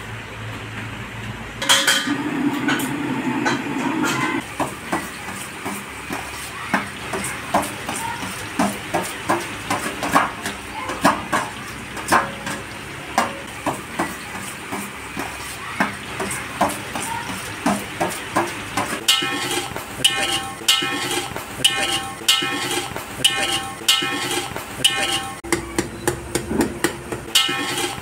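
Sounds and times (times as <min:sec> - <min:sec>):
oil sizzling: 0:01.6 - 0:25.5, 0:26.2 - 0:28.0
spoon stirring onions in pot: 0:18.8 - 0:26.4, 0:27.0 - 0:28.0
spoon scraping a steel plate: 0:19.0 - 0:25.4, 0:27.3 - 0:28.0.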